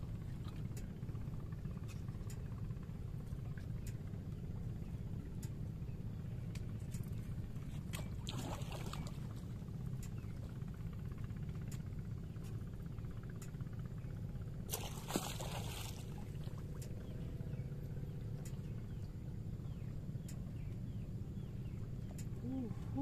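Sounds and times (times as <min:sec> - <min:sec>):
steady low rumble: 0:00.0 - 0:23.0
fish splashing at surface: 0:14.7 - 0:16.2.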